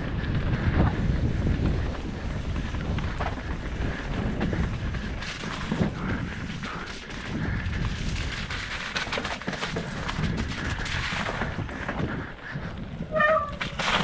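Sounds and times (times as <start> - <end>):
bike knocking and rattling: 0.0 - 14.0
wind buffeting camera: 0.0 - 14.0
tyres rolling over dirt and stones: 0.1 - 14.0
high squeal: 13.1 - 13.8.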